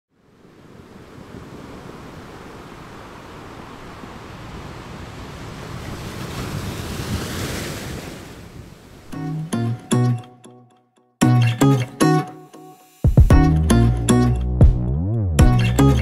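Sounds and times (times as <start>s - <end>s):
ocean waves surging: 0.1s - 9.9s.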